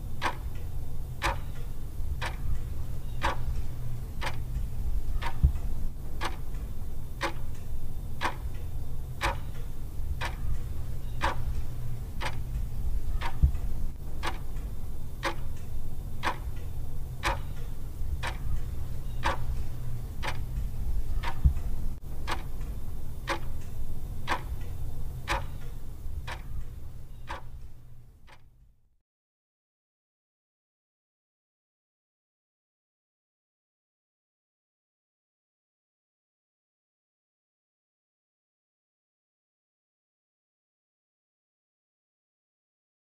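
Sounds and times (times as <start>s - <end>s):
low steady hum: 0.0s - 29.0s
clock ticking: 0.1s - 28.6s.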